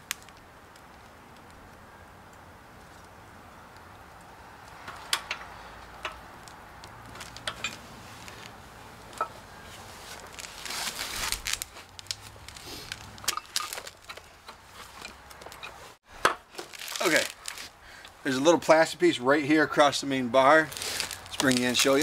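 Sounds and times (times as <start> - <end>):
light metallic clicks and knocks: 4.7 - 7.8
rustling scrape: 7.1 - 16.0, 20.7 - 22.0.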